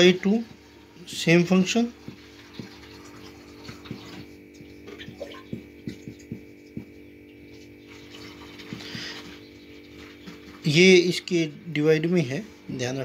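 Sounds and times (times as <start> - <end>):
steady electrical hum: 0.0 - 13.0
marker pen writing on whiteboard: 3.7 - 7.0.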